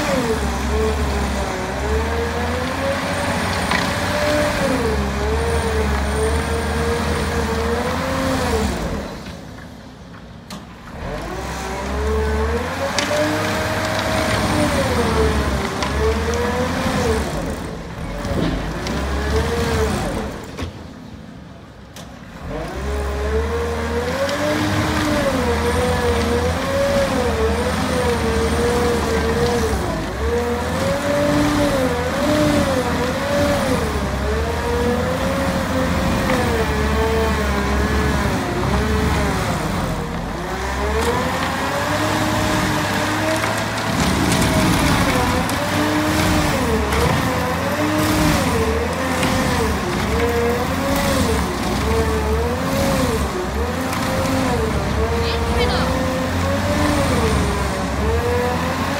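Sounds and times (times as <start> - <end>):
stump grinder whine: 0.0 - 9.6, 10.8 - 20.6, 22.3 - 58.9.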